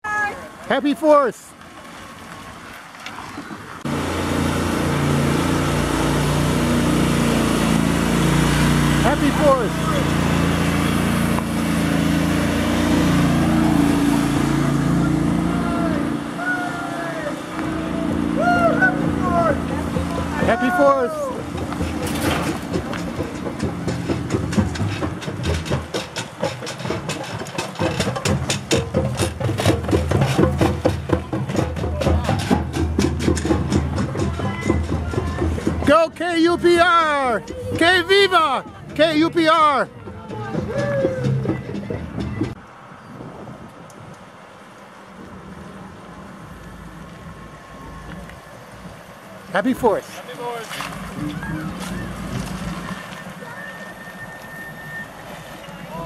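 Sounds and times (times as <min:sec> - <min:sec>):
vehicle engine running: 0:03.8 - 0:42.7, 0:45.2 - 0:56.0
small engine running: 0:03.9 - 0:15.9
rapid clatter of knocks: 0:21.4 - 0:35.9.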